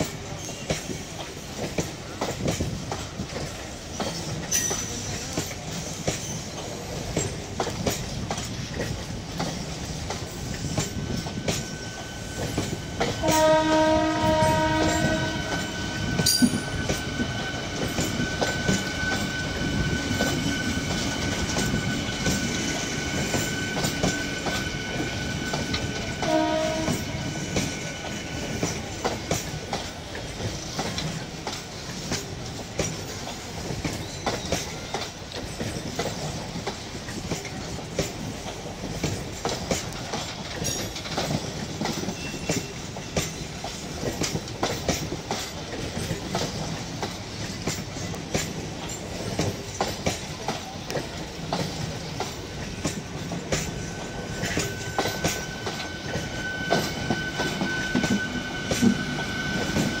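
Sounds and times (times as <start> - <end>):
wheels clicking over rail joints: 0.0 - 59.0
train rumbling past: 0.0 - 60.0.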